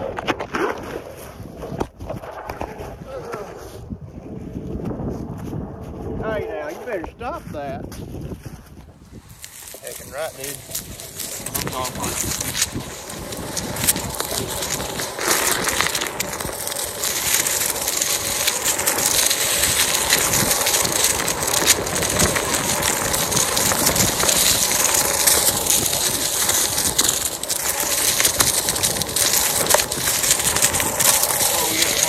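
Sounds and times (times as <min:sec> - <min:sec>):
tyre rolling over dry leaves: 0:09.1 - 0:32.0.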